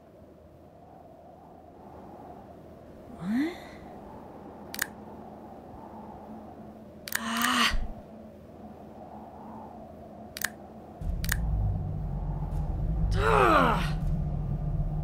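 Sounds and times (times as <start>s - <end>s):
sharp clicks: 4.7s - 5.0s, 7.0s - 7.9s, 10.3s - 11.6s
gliding pitched tones: 11.0s - 15.0s
low steady rumble: 11.0s - 15.0s.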